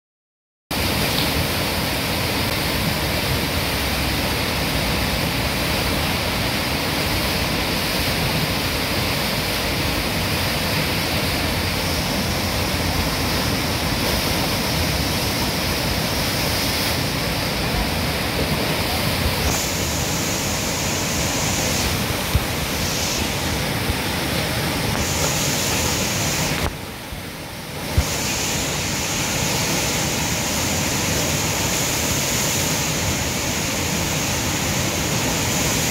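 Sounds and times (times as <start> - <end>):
rushing river water roar: 0.7 - 35.9.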